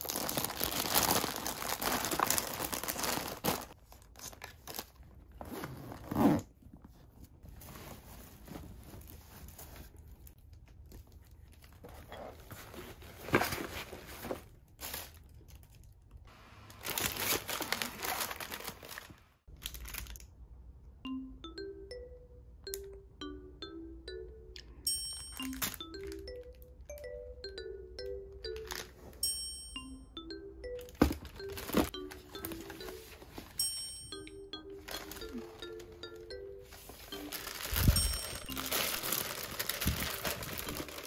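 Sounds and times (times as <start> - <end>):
plastic packaging crinkling: 0.0 - 5.4, 16.6 - 20.2, 25.4 - 26.7, 28.5 - 29.2, 30.8 - 33.6, 34.8 - 41.0.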